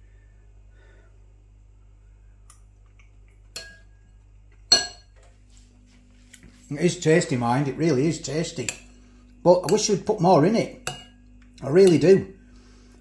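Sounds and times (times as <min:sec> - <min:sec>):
faint low hum: 0:00.0 - 0:13.0
metal spoon clinking bowl: 0:03.5 - 0:04.0, 0:04.7 - 0:05.2, 0:08.5 - 0:12.3.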